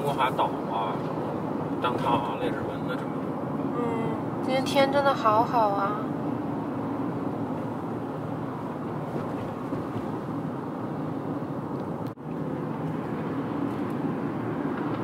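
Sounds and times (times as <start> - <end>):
car cabin road noise: 0.0 - 15.0.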